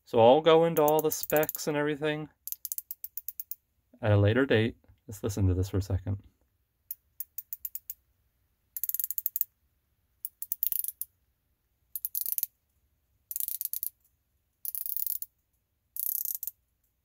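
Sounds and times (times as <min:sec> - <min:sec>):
watch bezel ratcheting clicks: 0:00.9 - 0:01.6, 0:02.4 - 0:03.6, 0:06.9 - 0:08.0, 0:08.8 - 0:09.5, 0:10.2 - 0:11.1, 0:12.0 - 0:12.5, 0:13.3 - 0:14.0, 0:14.6 - 0:15.3, 0:16.0 - 0:16.6.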